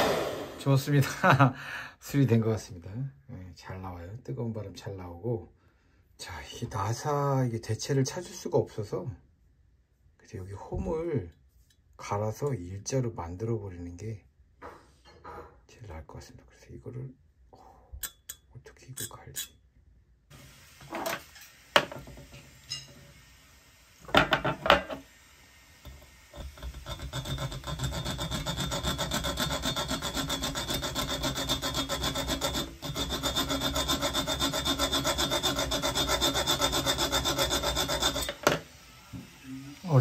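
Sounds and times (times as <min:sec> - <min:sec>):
hacksaw sawing metal: 0:26.4 - 0:38.6.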